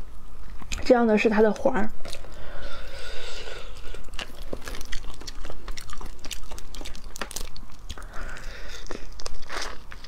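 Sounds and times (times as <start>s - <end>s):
close-up chewing: 1.6s - 10.0s
shellfish shells cracking: 3.9s - 10.0s.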